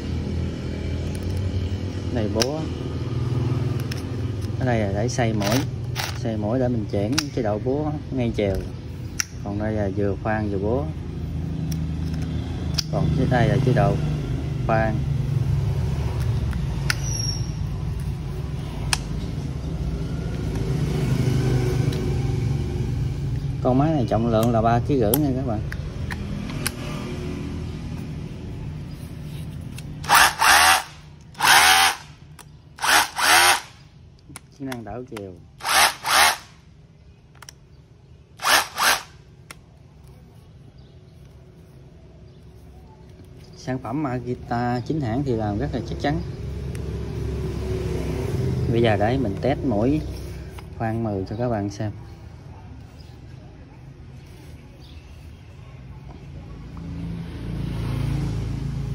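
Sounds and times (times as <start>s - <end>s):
sharp clicks of handled tool: 7.1s - 7.4s, 11.6s - 13.0s, 24.4s - 26.8s, 37.3s - 37.6s
cordless rotary hammer bursts: 30.0s - 32.2s, 32.8s - 33.9s, 35.6s - 36.6s, 38.4s - 39.2s.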